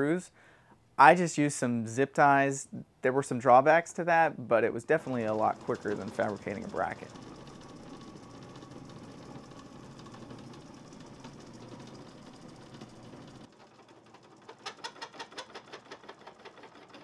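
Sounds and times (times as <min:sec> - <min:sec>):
metal lathe humming: 0:05.0 - 0:13.5
rapid sharp clicks: 0:05.0 - 0:17.0.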